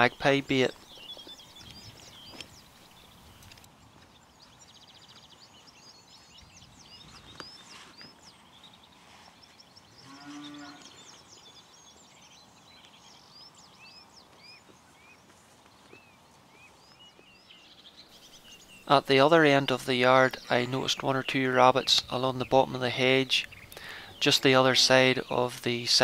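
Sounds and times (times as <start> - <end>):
small birds singing: 0.0 - 26.0
cow mooing: 10.0 - 11.0, 24.5 - 25.3.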